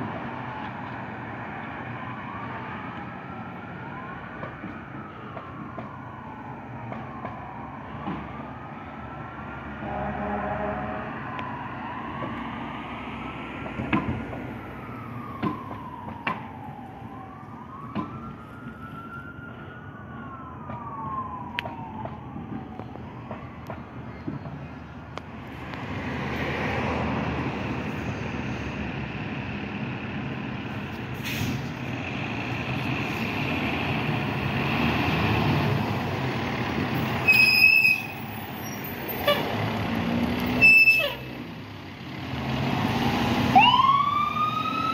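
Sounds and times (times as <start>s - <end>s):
fire engine running: 0.0s - 44.9s
fire engine siren wailing: 0.0s - 44.9s
high-pitched horn blasts: 9.8s - 11.1s.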